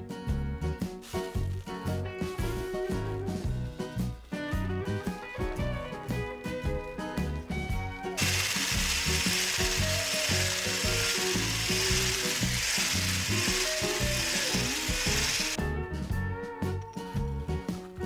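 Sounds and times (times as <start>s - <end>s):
hand blender whisking batter: 8.2s - 15.6s.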